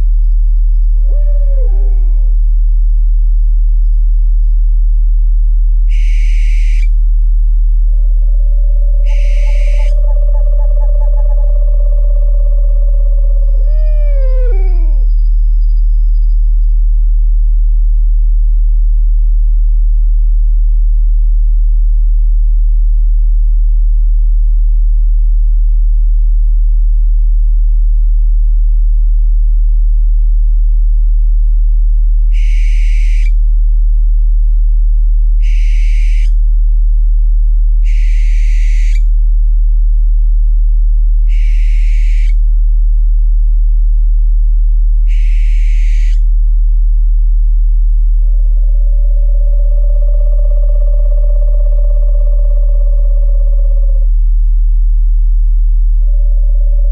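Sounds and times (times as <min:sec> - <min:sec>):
low drone tone: 0:00.0 - 0:18.4, 0:42.3 - 0:56.9
owl screeching: 0:01.0 - 0:02.4, 0:05.9 - 0:06.9, 0:08.3 - 0:15.3, 0:32.3 - 0:33.4, 0:35.4 - 0:36.4, 0:37.8 - 0:39.1, 0:41.3 - 0:42.4, 0:45.1 - 0:46.3, 0:48.7 - 0:54.1.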